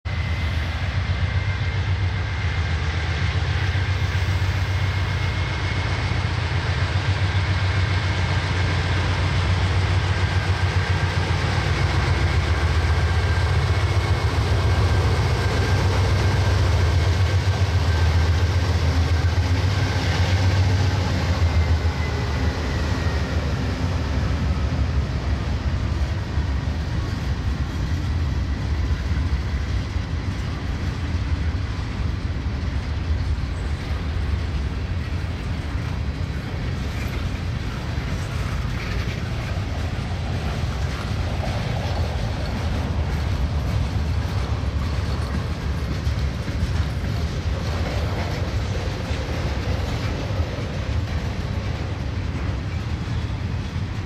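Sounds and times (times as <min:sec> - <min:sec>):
diesel locomotive rumble: 0:00.0 - 0:54.0
freight cars rolling on rails: 0:00.1 - 0:54.0.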